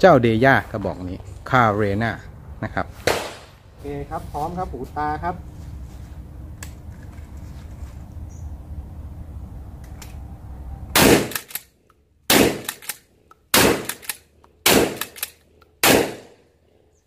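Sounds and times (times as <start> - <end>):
shotgun shots: 3.0 - 3.6, 11.0 - 11.6, 12.3 - 16.4
shotgun pump clacks: 12.6 - 15.4.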